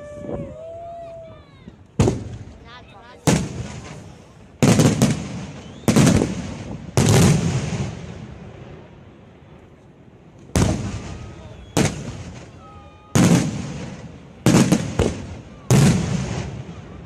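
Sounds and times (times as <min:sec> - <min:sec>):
firework shells bursting with echo: 0:10.4 - 0:12.6.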